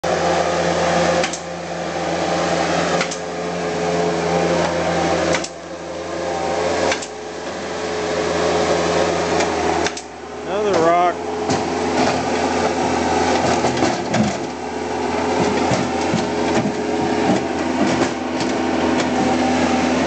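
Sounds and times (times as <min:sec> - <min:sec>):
loader engine running under load: 0:00.0 - 0:20.0.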